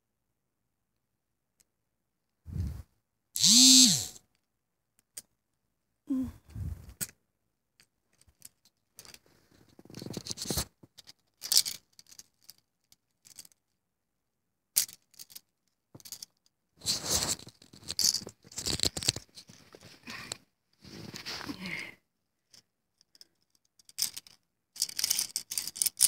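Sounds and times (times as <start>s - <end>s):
plastic toy keys rustling and clacking: 7.8s - 13.8s, 14.8s - 20.4s, 22.5s - 26.0s.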